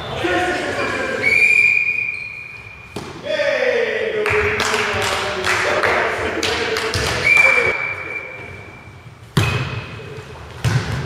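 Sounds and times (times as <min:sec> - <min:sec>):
players' voices: 0:00.0 - 0:08.8
volleyball hit by hand: 0:10.6 - 0:11.0.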